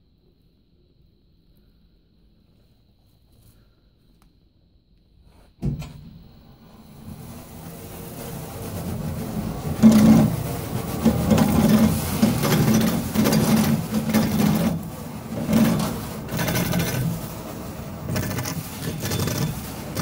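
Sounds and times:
machine running: 0:05.8 - 0:20.0
plastic film fluttering: 0:07.0 - 0:20.0.

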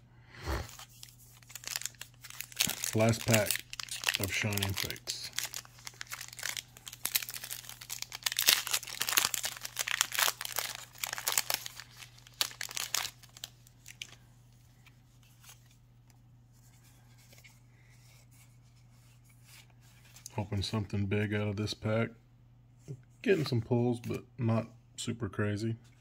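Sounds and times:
foil wrapper tearing and crinkling: 0:00.6 - 0:14.2.

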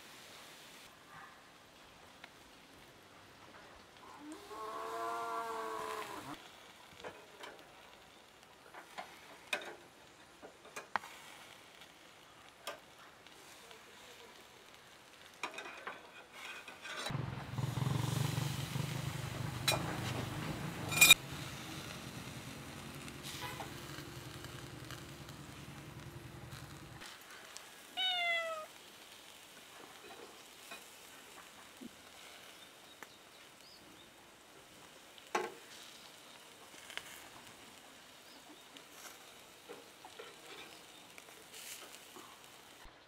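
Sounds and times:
burger patties sizzling on grill: 0:04.3 - 0:15.7, 0:17.2 - 0:43.0
spatula clanking on grill: 0:15.4 - 0:17.1, 0:19.6 - 0:21.2.

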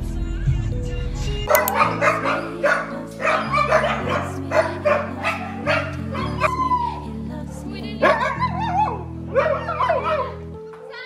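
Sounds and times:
background music: 0:00.0 - 0:11.0
dog howling call: 0:01.5 - 0:07.1, 0:08.0 - 0:10.4
dogs barking and yipping: 0:01.5 - 0:07.1, 0:08.0 - 0:10.7.

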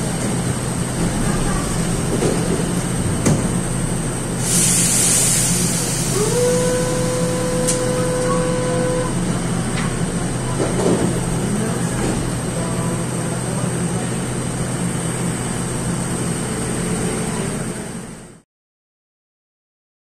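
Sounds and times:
steady hum of standing train: 0:00.0 - 0:18.4
distorted door-closing warning tone: 0:06.1 - 0:09.2.

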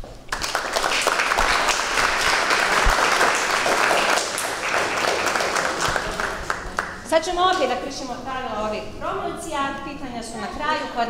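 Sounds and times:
audience applauding: 0:00.3 - 0:07.2.

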